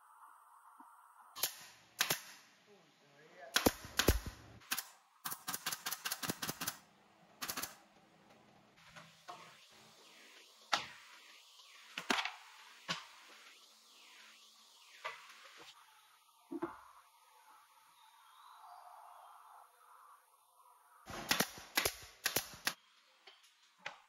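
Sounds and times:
nail gun shots into wood: 0:01.4 - 0:02.4, 0:03.5 - 0:06.8, 0:21.1 - 0:22.8.

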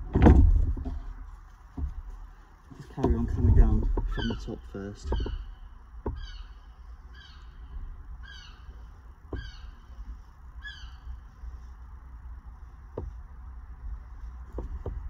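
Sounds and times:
low steady rumble: 0:00.0 - 0:15.0
bird falling call: 0:04.0 - 0:06.6.

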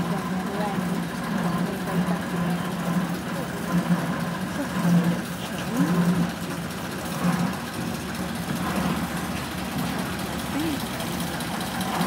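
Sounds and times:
diesel locomotive engine running: 0:00.0 - 0:12.0.

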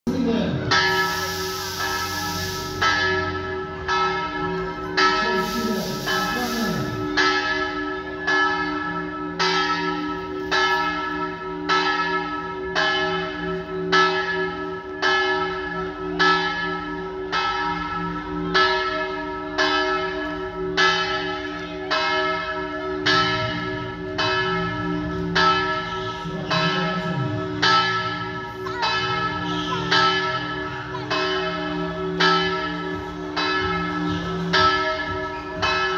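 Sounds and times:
church bells ringing: 0:00.1 - 0:35.9.

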